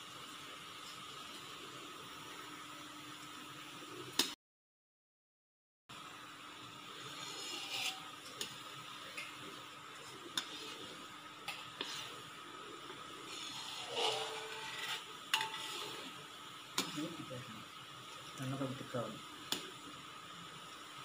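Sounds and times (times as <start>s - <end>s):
syrup boiling and bubbling: 0.0s - 4.3s, 5.9s - 21.0s
metal spoon scraping wok: 7.0s - 8.2s, 10.4s - 12.3s, 13.3s - 16.2s.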